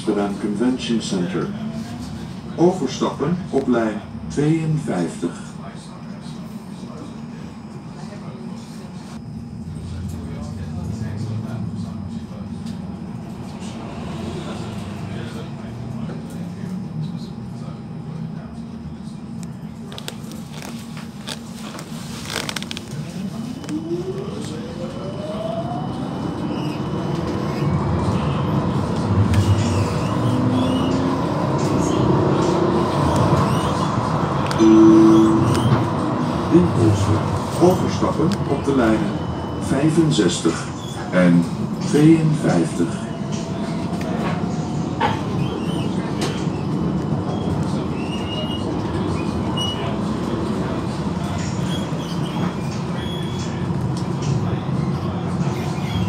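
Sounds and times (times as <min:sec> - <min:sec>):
tram motor whine: 0:00.0 - 0:56.0
tram rumbling on rails: 0:00.0 - 0:56.0
wheels squeaking on rails: 0:29.2 - 0:41.2, 0:42.9 - 0:56.0.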